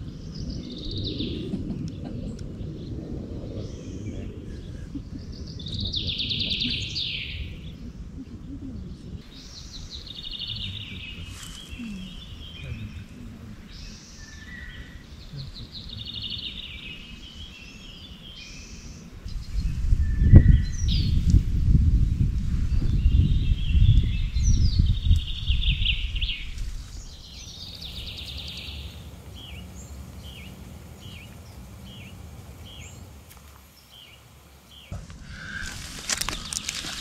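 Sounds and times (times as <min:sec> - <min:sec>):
low rumble: 0:00.0 - 0:16.0
songbird trilling: 0:23.1 - 0:37.0.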